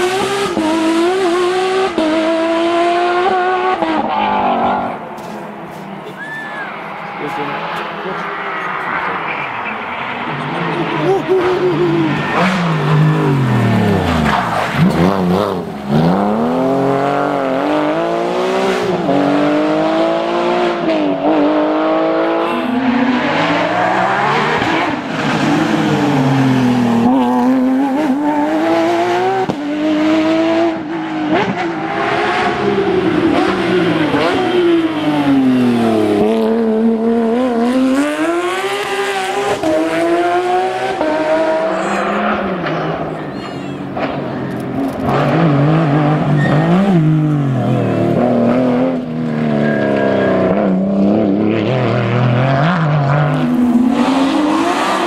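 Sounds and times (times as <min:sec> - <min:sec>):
rally car engines revving past: 0:00.0 - 0:55.0.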